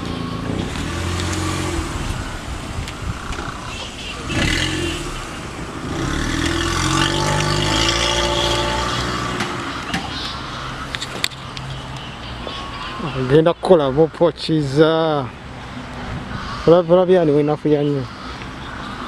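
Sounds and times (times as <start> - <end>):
car engine running: 0.0 - 13.2.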